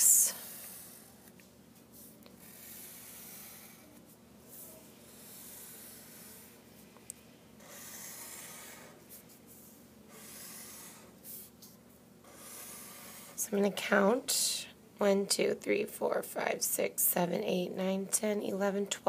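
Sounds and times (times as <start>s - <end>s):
marker drawn across paper: 0.0s - 6.8s, 7.6s - 13.4s.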